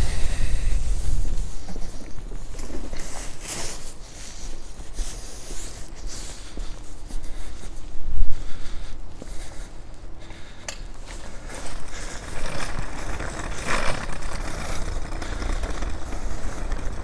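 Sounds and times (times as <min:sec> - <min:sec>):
wind buffeting microphone: 0:00.0 - 0:05.1
footsteps on paving stones: 0:00.7 - 0:17.0.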